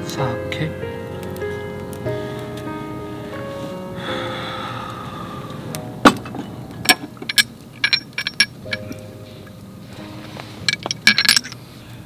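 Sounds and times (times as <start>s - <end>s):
soft background music: 0.0s - 12.0s
glass and metal clinking: 6.1s - 9.2s, 10.6s - 11.6s.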